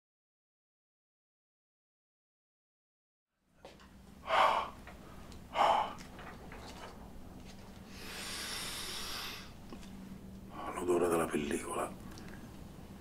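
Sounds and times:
faint steady hum: 3.4 - 13.0
breathy exhale: 4.2 - 4.8, 5.5 - 6.0, 7.9 - 9.6
person gasping: 4.2 - 4.8, 5.5 - 6.1, 7.9 - 9.6.

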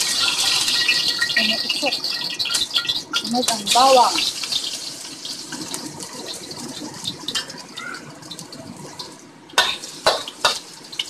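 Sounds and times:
garlic sizzling in hot oil: 0.0 - 11.0
spatula scraping wok: 9.6 - 11.0.

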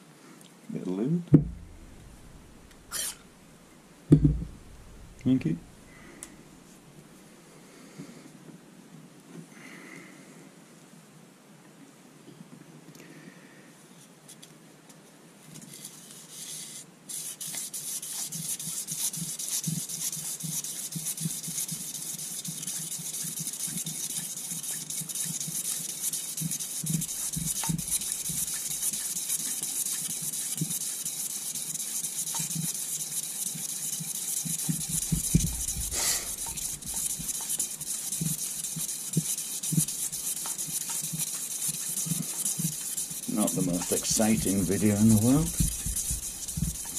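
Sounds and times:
knock: 1.3 - 3.0, 4.1 - 5.3, 34.9 - 36.0
abrasive strip rubbing metal: 1.4 - 3.5, 4.1 - 6.8, 17.4 - 46.9.

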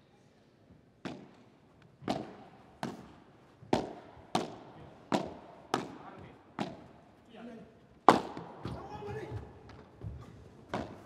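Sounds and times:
rackets striking ball: 1.0 - 7.0, 8.0 - 8.9, 10.7 - 11.0.

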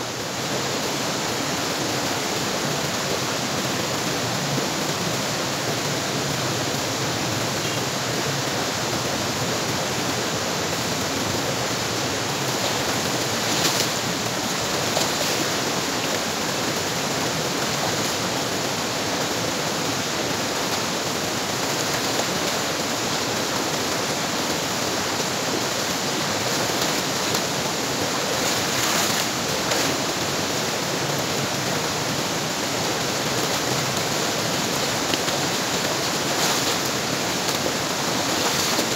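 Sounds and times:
stream rushing over rocks: 0.0 - 38.9
water splashing: 10.7 - 38.9.

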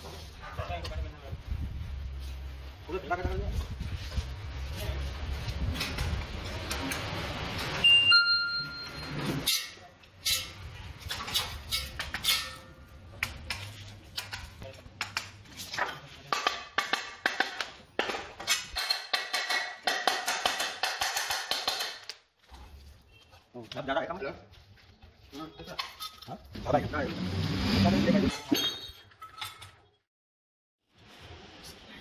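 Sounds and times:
ringing ping: 7.8 - 9.1
sharp taps and metallic clinks: 16.3 - 22.2.

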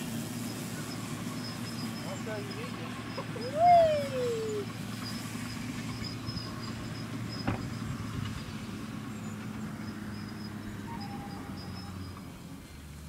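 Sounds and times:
falling tone: 3.4 - 4.7.

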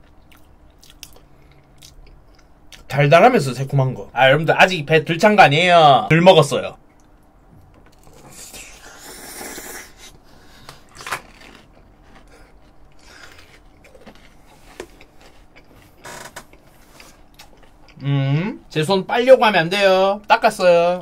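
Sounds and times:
quiet chewing: 6.9 - 18.0.

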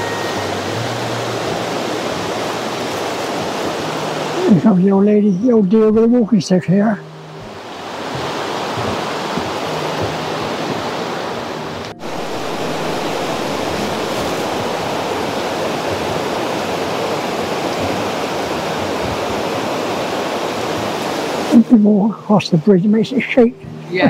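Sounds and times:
river water rushing: 0.0 - 24.0.

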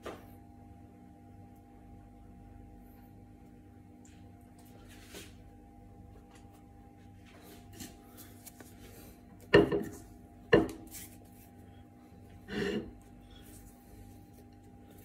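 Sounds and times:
dough thumping: 9.4 - 11.0
dough rubbing and tearing: 10.8 - 11.8.

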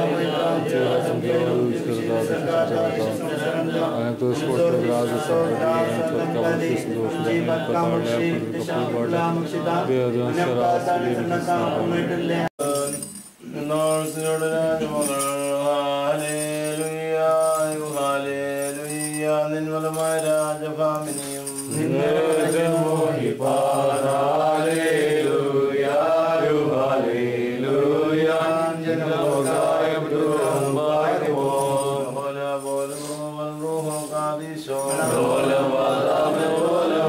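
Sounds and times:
man chanting a prayer: 0.0 - 37.0
voices chanting together: 0.0 - 37.0
censer bells chinking: 12.6 - 25.6, 28.4 - 37.0.

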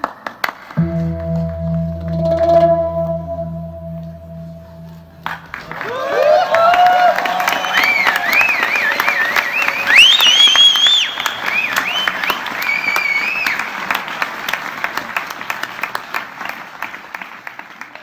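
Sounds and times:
audience applauding: 5.7 - 18.0
high whistles: 7.4 - 13.6.

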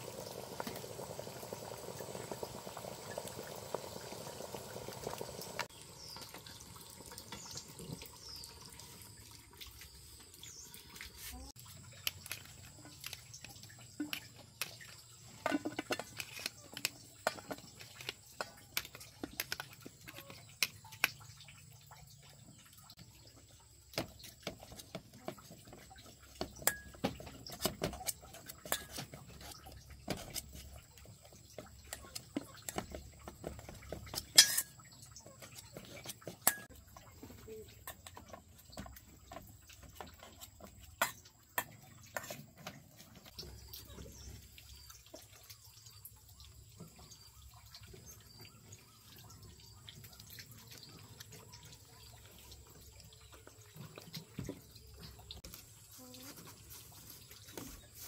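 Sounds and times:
water dripping and splashing: 0.0 - 58.0
dishes and utensils clinking: 13.9 - 20.7, 34.1 - 36.8.

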